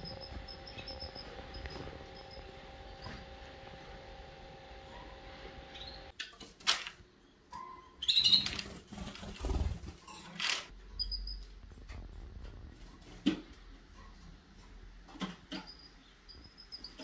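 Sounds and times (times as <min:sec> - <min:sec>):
canaries chirping: 0:00.0 - 0:02.5, 0:04.9 - 0:06.1, 0:07.6 - 0:08.6, 0:15.5 - 0:17.0
wings flapping and rustling: 0:08.4 - 0:10.7.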